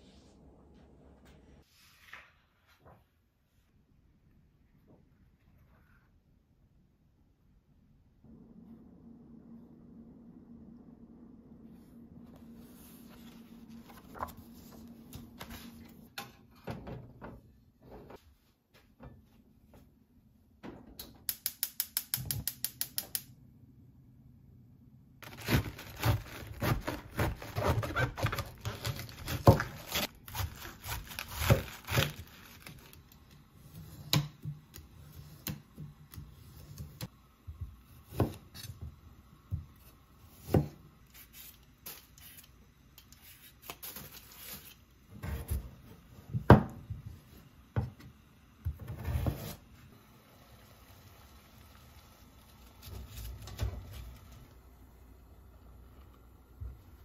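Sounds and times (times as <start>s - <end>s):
knife cutting cabbage on board: 25.2s - 32.3s.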